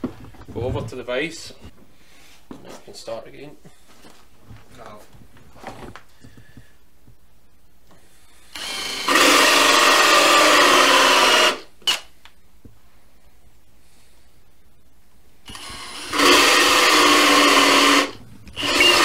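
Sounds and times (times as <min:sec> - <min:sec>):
drill with hole saw cutting wood: 0:08.5 - 0:12.1, 0:15.5 - 0:19.0.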